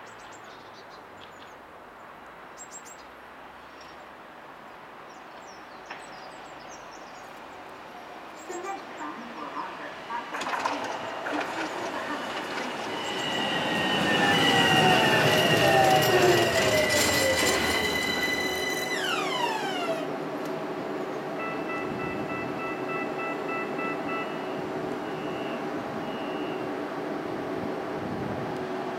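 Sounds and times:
tram running noise: 7.7 - 28.9
tram motor whine: 8.6 - 28.9.

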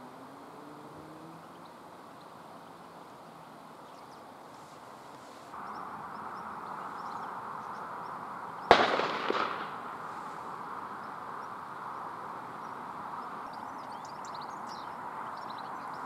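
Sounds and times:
gunshot: 8.7 - 9.8
gunshot echo: 8.7 - 9.9.

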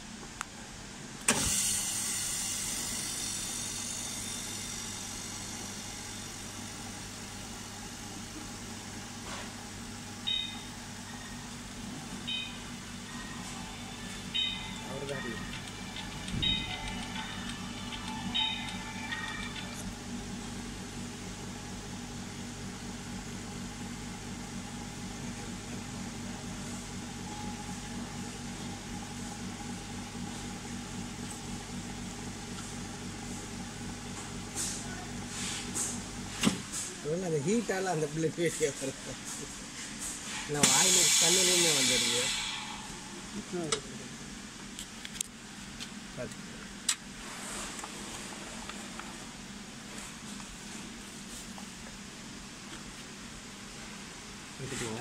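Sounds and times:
vacuum pump humming and hissing: 0.0 - 55.0
short electronic beep: 10.3 - 11.4, 12.3 - 13.6, 14.3 - 15.5, 16.4 - 17.2.

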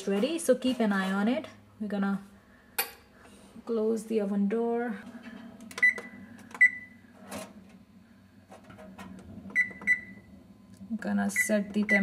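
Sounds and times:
oven control panel beeps: 5.7 - 7.0, 9.5 - 10.3, 11.2 - 12.0.

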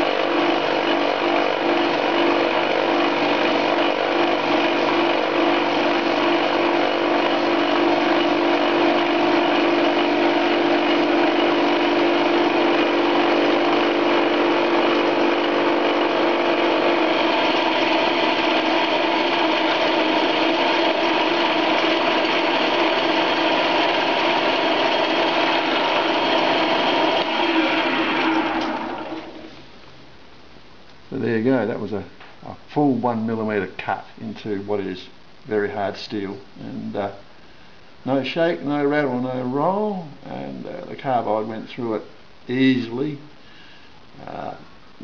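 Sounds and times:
lathe cutting steel: 0.0 - 29.4
lathe running down: 0.0 - 29.5.

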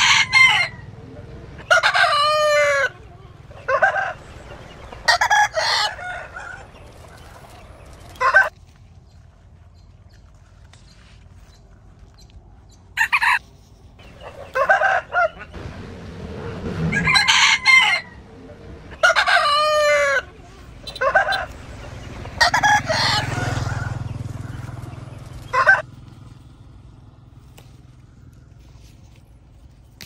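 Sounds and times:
rooster crowing: 0.0 - 0.9, 1.6 - 2.9, 5.1 - 6.8, 13.0 - 13.4, 14.3 - 15.6, 16.8 - 20.3, 22.4 - 24.7
chickens clucking and squawking: 0.0 - 8.5, 13.0 - 13.4, 14.0 - 15.8, 16.6 - 25.8.

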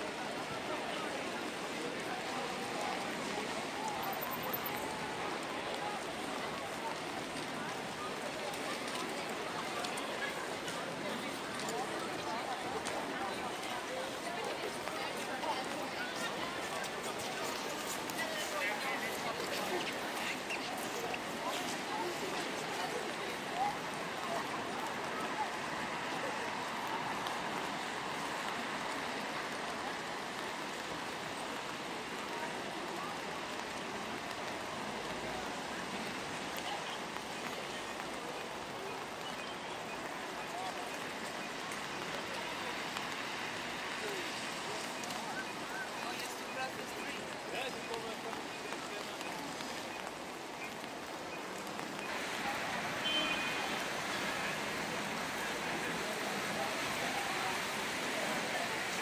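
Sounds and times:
rain on wet pavement: 0.0 - 59.0.

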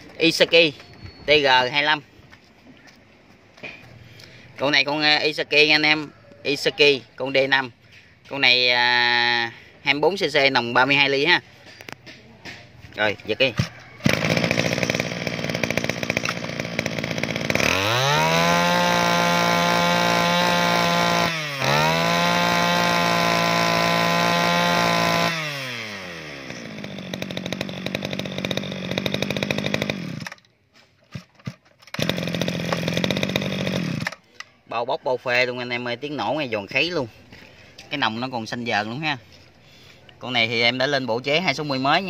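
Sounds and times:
brush cutter engine revving: 12.9 - 30.4, 31.1 - 34.3.

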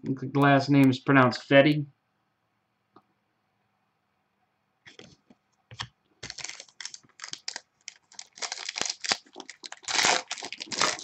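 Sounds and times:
foil wrapper crinkling and tearing: 6.2 - 11.0.

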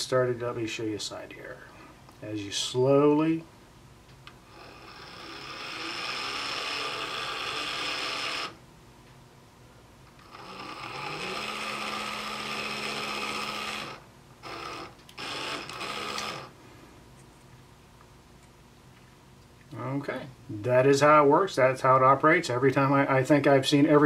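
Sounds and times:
small electric motor spinning: 4.5 - 8.6, 10.2 - 16.6.

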